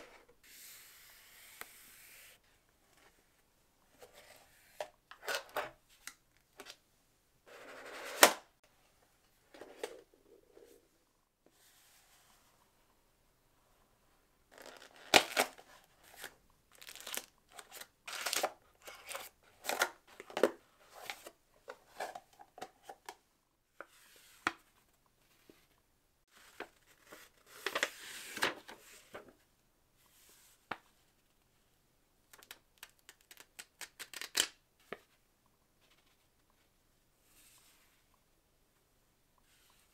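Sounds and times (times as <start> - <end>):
packaging crinkling and tearing: 16.8 - 19.2.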